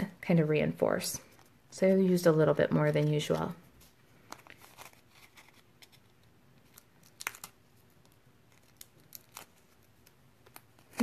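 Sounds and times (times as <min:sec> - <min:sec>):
paper rustling: 0:03.0 - 0:11.0.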